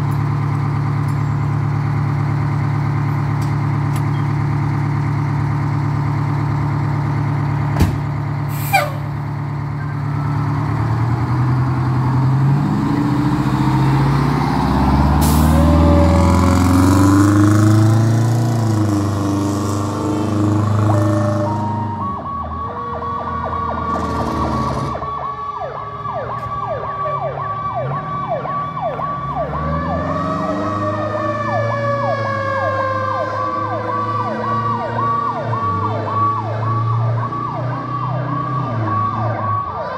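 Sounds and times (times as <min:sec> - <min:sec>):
diesel engine idling and revving: 0:00.0 - 0:39.9
siren yelp: 0:18.8 - 0:39.9
siren tone winding up and down: 0:19.8 - 0:25.3, 0:26.3 - 0:39.9.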